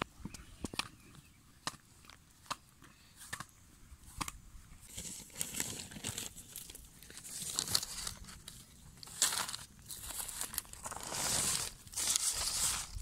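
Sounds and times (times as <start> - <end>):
plastic bag crinkling: 4.9 - 13.0.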